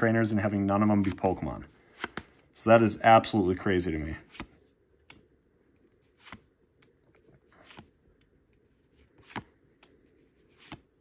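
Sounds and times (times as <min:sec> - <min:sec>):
cards sliding and flicking: 0:01.0 - 0:02.5, 0:04.2 - 0:11.0.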